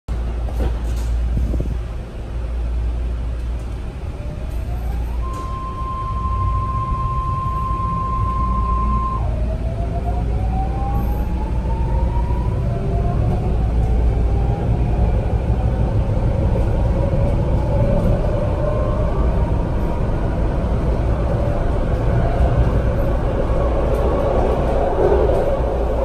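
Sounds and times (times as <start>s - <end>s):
train wheels rumbling on track: 0.1s - 26.0s
electric propulsion whine: 4.0s - 13.6s.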